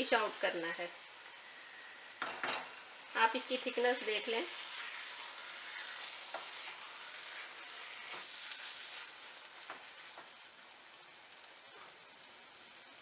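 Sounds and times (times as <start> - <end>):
food sizzling in a pan: 0.0 - 13.0
spatula scraping pan: 3.4 - 10.1.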